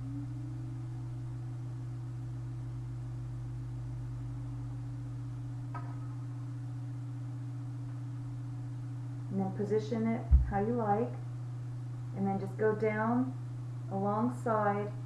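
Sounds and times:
wavering higher tone: 0:00.0 - 0:03.4
steady low hum: 0:00.0 - 0:15.0.

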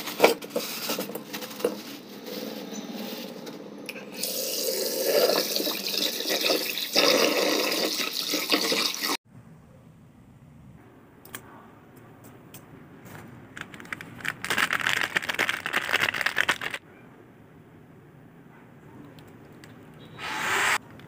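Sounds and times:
plastic bag crinkling: 0:13.5 - 0:16.8.

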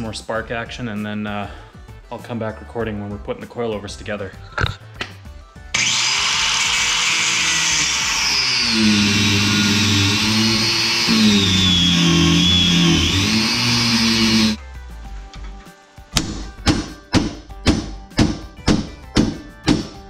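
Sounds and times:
angle grinder cutting steel: 0:05.8 - 0:14.6.

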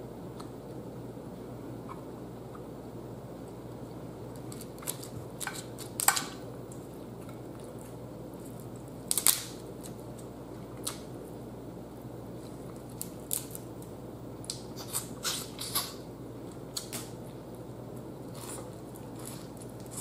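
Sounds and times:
low room hum: 0:00.0 - 0:20.0
crab shells cracking and snapping: 0:04.3 - 0:06.8, 0:08.5 - 0:11.1, 0:12.7 - 0:17.2.

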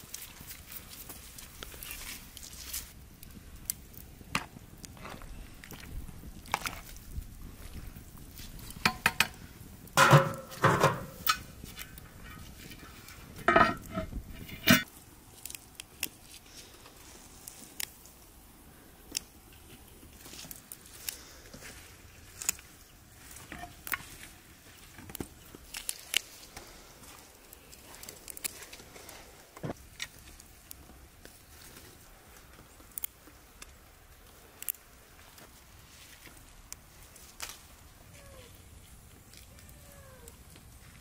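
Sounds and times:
wood fire crackling: 0:00.0 - 0:41.0
cookware clattering: 0:10.0 - 0:11.4, 0:13.4 - 0:14.8.

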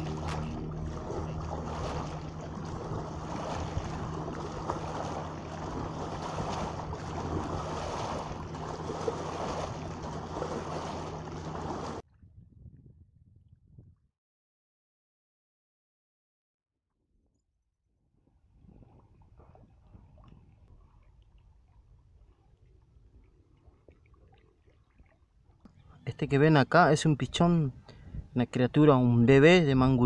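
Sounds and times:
steady low hum: 0:00.0 - 0:12.0
water lapping and splashing: 0:00.0 - 0:12.0, 0:18.4 - 0:26.1
wind buffeting microphone: 0:00.0 - 0:14.0.

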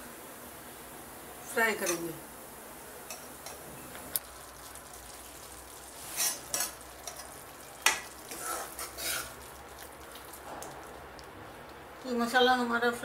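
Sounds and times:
paste sizzling in pan: 0:01.5 - 0:12.4
ladle scraping pan: 0:05.9 - 0:09.5.

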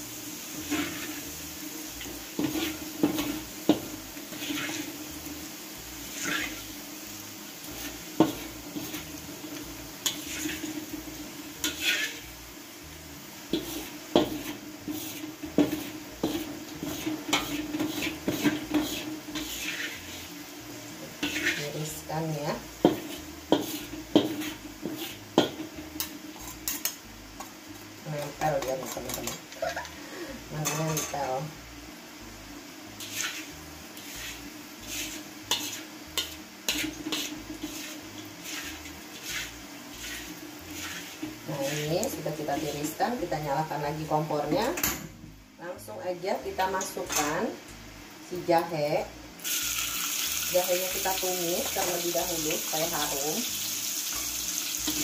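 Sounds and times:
faint oil sizzle: 0:00.0 - 0:55.0
metal spatula scraping a wok: 0:00.4 - 0:06.8, 0:07.5 - 0:12.4, 0:13.4 - 0:27.1, 0:28.2 - 0:29.8, 0:32.9 - 0:44.8, 0:46.9 - 0:47.4, 0:54.2 - 0:55.0.

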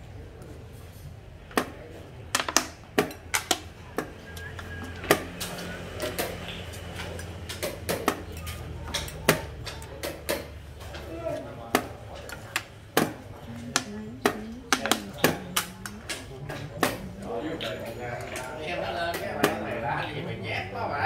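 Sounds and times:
game pieces clacking on wooden board: 0:02.3 - 0:03.7.

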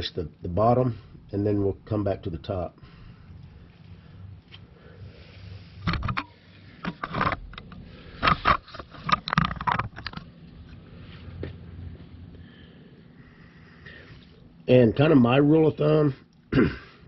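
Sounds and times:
camera handling knocks and scrapes: 0:05.8 - 0:10.3.

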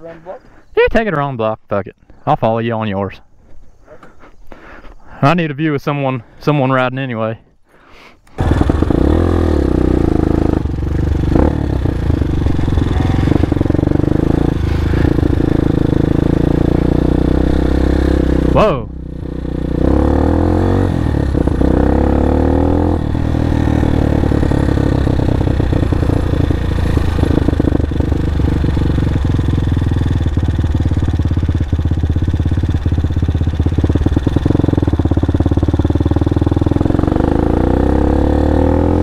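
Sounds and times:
motorcycle engine revving: 0:08.4 - 0:39.0.

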